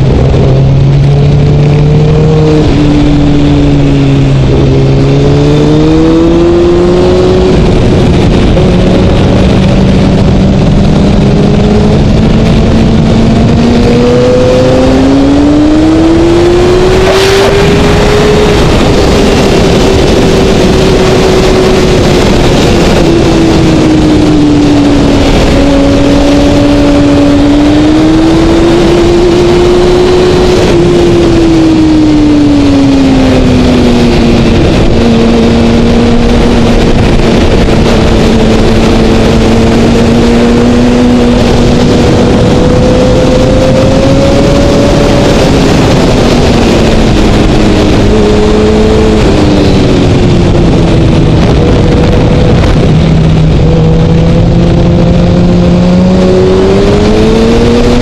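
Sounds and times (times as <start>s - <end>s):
motorcycle engine running hard: 0.0s - 58.0s
wind rush on microphone: 0.0s - 58.0s.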